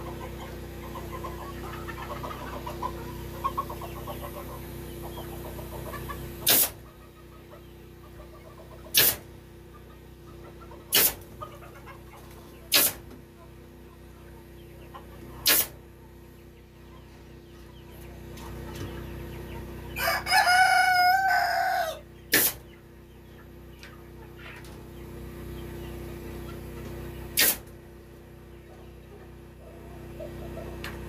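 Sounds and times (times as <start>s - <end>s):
pneumatic staple gun firing: 6.4s - 6.8s, 9.0s - 9.2s, 11.0s - 11.2s, 12.7s - 13.0s, 15.5s - 15.8s, 22.3s - 22.6s, 27.4s - 27.6s
rooster crowing: 20.0s - 22.0s.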